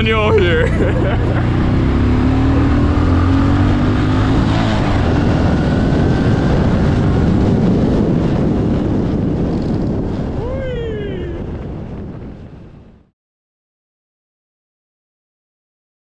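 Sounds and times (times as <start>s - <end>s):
motorbike engine running: 0.0s - 10.2s
wind rush on microphone: 0.0s - 13.2s.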